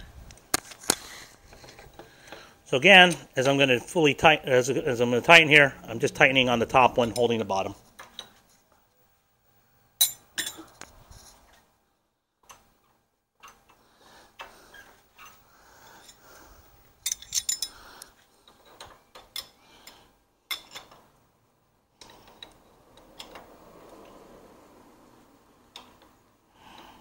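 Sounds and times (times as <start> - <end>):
metal wrenches clinking: 10.0 - 10.7, 17.0 - 17.8, 20.5 - 21.0.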